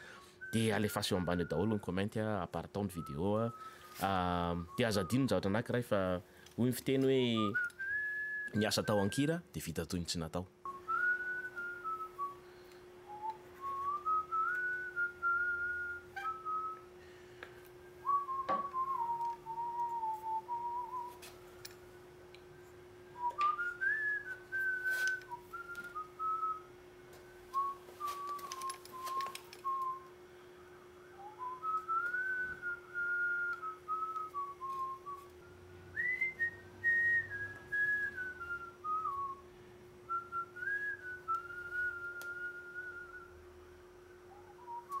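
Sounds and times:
person whistling a tune: 0.0 - 1.9, 2.9 - 5.4, 7.1 - 9.2, 10.7 - 16.9, 17.8 - 21.3, 23.2 - 26.7, 27.5 - 30.1, 31.1 - 39.4, 40.1 - 43.3, 44.2 - 45.0
steady low hum: 0.0 - 45.0.

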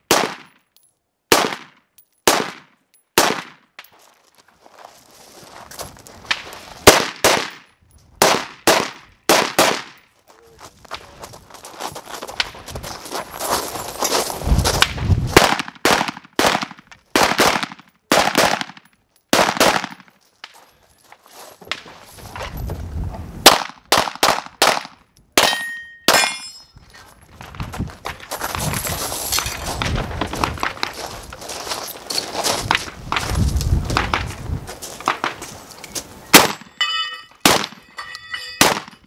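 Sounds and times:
footsteps scuffing on gravel: 3.9 - 6.9, 10.1 - 15.3, 20.2 - 22.9, 26.8 - 36.2
steel targets clanging: 25.4 - 26.8, 35.8 - 39.0.

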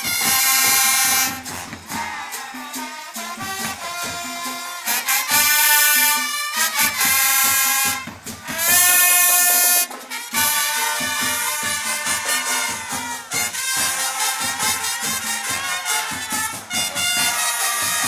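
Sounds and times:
marching brass band playing: 0.0 - 18.0.

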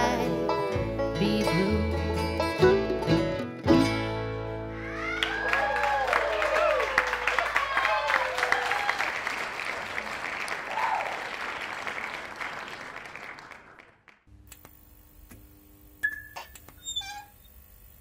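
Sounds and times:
audience applause: 4.8 - 14.3
faint steady hum: 14.3 - 18.0
short blips: 16.0 - 17.0.

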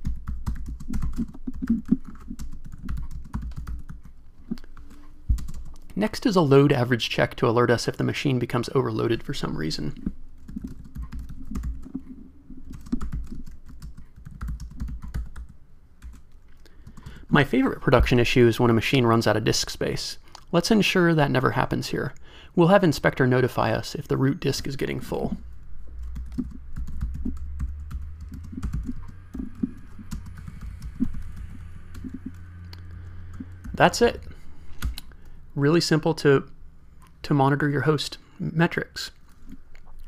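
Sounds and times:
typing on computer keyboard: 0.0 - 4.2, 10.4 - 12.1, 12.7 - 17.2, 26.0 - 32.4
steady low hum: 0.0 - 40.0.

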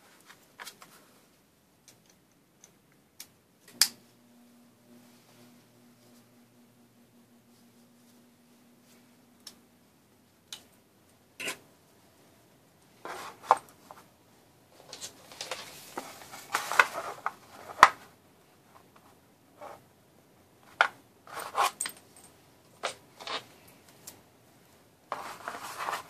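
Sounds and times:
paper rustling: 14.8 - 18.0, 25.1 - 26.0.

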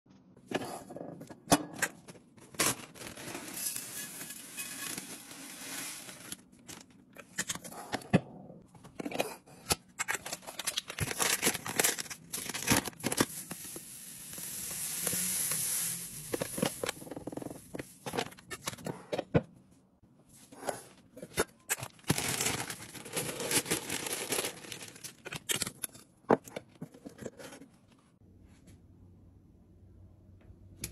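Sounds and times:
dry goods pouring into jar: 3.0 - 6.4, 22.1 - 25.1
paper bag crinkling: 21.9 - 25.4.

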